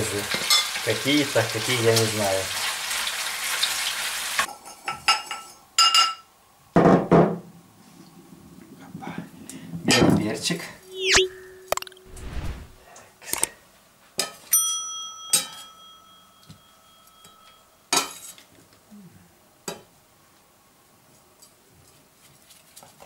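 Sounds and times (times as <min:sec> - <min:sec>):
bell ding: 0:14.6 - 0:17.6.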